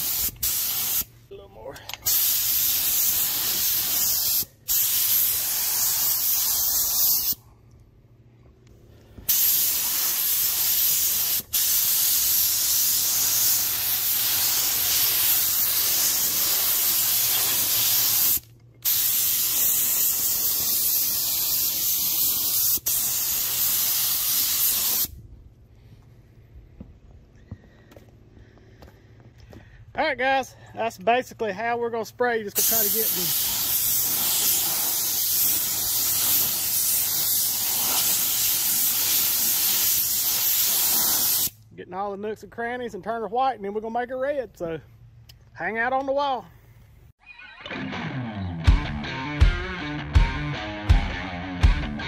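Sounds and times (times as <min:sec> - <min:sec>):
paint spray gun hissing: 0:00.0 - 0:01.1, 0:02.1 - 0:07.4, 0:09.3 - 0:25.1, 0:32.6 - 0:41.6.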